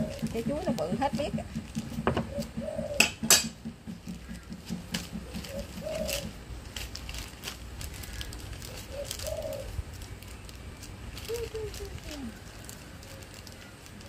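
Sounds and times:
dove cooing: 0:00.0 - 0:06.6, 0:07.9 - 0:10.3, 0:11.1 - 0:14.0
plastic bag crinkling: 0:05.0 - 0:14.0.

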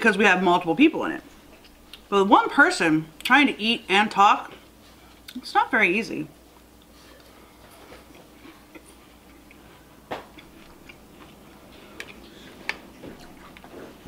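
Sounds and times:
chewing cereal: 0:06.5 - 0:14.0.

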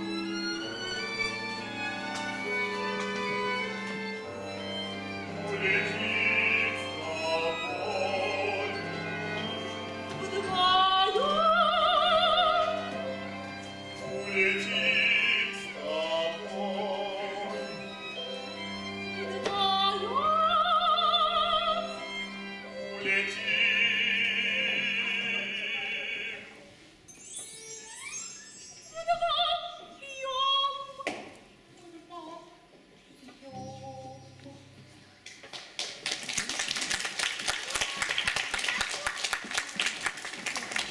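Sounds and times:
instrumental ensemble low notes: 0:00.0 - 0:11.0
operatic soprano singing: 0:05.3 - 0:09.0, 0:10.2 - 0:12.9, 0:14.1 - 0:17.8, 0:19.2 - 0:22.0, 0:22.8 - 0:26.6, 0:28.9 - 0:31.2.

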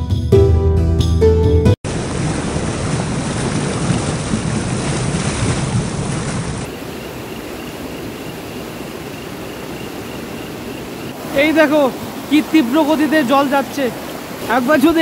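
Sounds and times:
river rushing over rocks: 0:11.0 - 0:15.0.

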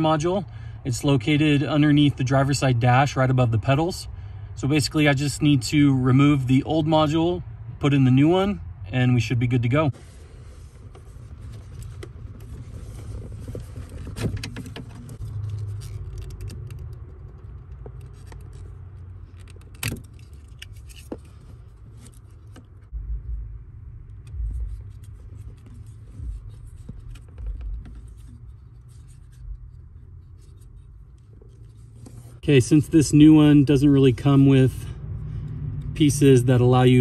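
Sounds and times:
dull low thumps: 0:22.8 - 0:28.6.

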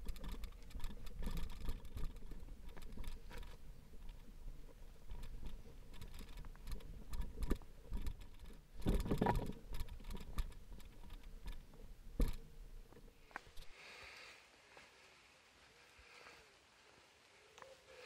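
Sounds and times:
bicycle rattling and clicking: 0:00.0 - 0:13.7.

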